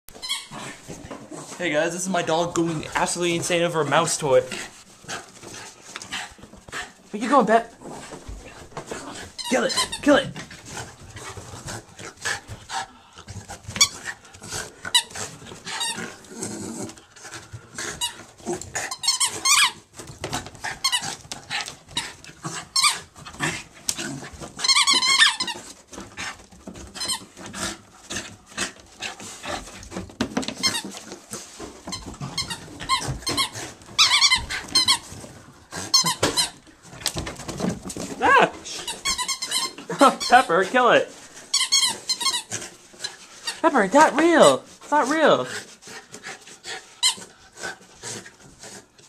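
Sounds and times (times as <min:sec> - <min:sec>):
dog chewing rubber toy: 0:00.1 - 0:49.0
squeaky toy squeaking: 0:00.2 - 0:00.5, 0:09.4 - 0:10.2, 0:18.9 - 0:19.8, 0:24.6 - 0:25.6, 0:31.9 - 0:35.0, 0:35.9 - 0:36.6, 0:38.7 - 0:40.6, 0:41.5 - 0:42.5.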